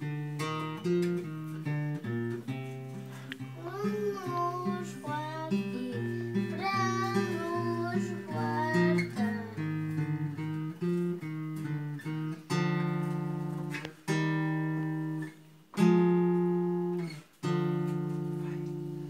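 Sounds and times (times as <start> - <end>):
acoustic guitar picking: 0.0 - 19.0
person singing a lullaby: 3.4 - 10.0.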